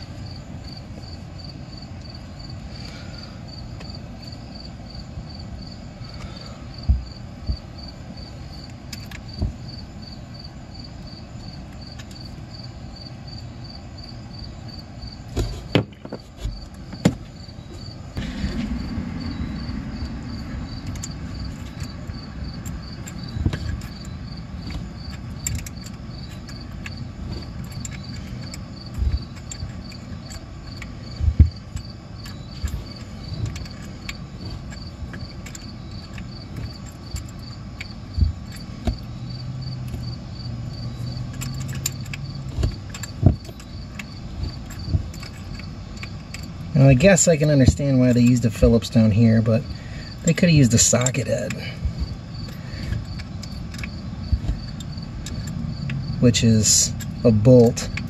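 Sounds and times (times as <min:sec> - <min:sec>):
cricket chirping: 0:00.0 - 0:58.0
hand tools clicking on metal: 0:20.8 - 0:58.0.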